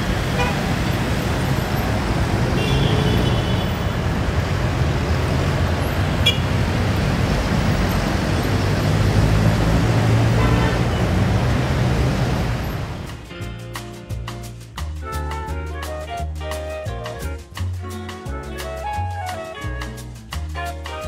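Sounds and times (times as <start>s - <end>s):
traffic passing: 0.0s - 14.8s.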